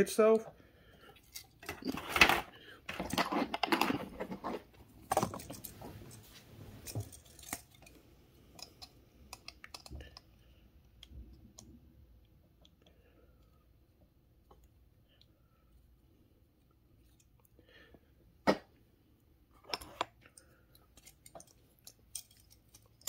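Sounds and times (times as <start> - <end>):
plastic packaging rustling: 1.2 - 7.9.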